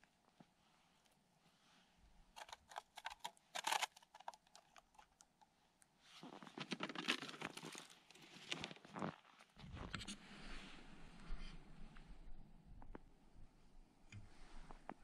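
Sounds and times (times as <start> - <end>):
plastic jug crinkling: 2.4 - 5.3, 6.2 - 9.5
plastic clicks and scrapes: 2.4 - 5.5.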